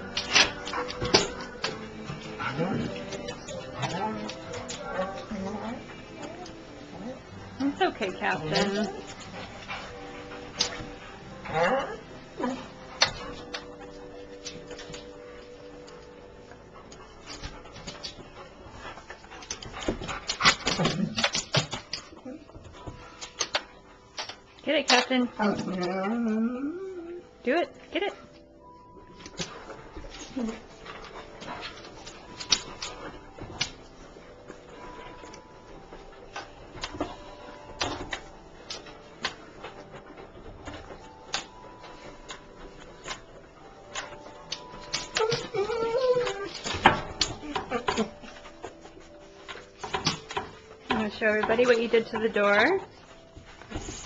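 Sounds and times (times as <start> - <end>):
dog whimpering: 8.2 - 9.4, 11.4 - 12.8, 25.3 - 27.4, 44.9 - 48.5
dog claws tapping and scratching: 16.8 - 26.0, 29.2 - 34.0, 34.9 - 52.9.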